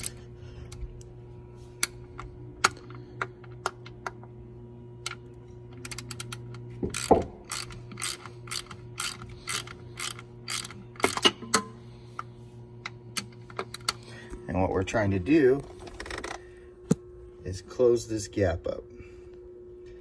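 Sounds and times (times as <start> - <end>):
steady low hum: 0.0 - 20.0
ratcheting wrench clicking: 5.8 - 11.3.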